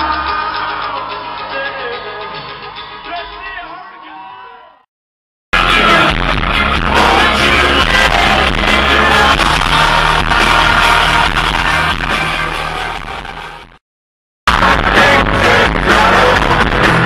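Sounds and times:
live band playing: 0.0s - 4.0s, 5.6s - 13.6s, 14.5s - 17.0s
lead singer singing: 5.6s - 12.8s, 14.5s - 17.0s.

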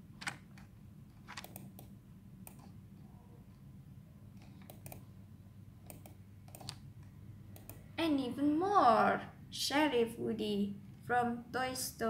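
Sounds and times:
low steady hum: 0.0s - 12.0s
computer mouse clicks: 0.2s - 2.8s, 4.4s - 5.1s, 5.8s - 7.9s.

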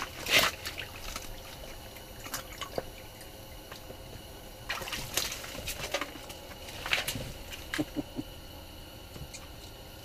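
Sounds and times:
water dripping and splashing: 0.0s - 7.9s.

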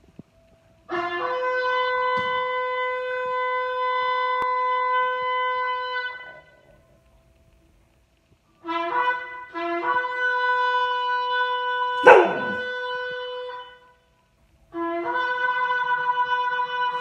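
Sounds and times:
dog howling: 12.0s - 12.7s.

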